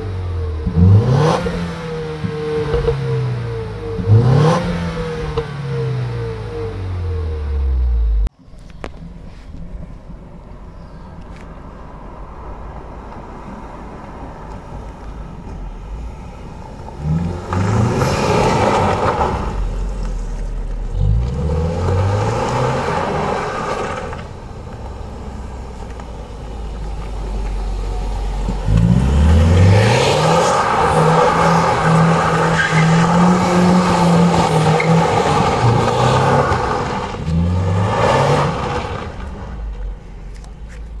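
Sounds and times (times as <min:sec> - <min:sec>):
car engine accelerating hard: 0:00.0 - 0:08.3, 0:16.2 - 0:40.1.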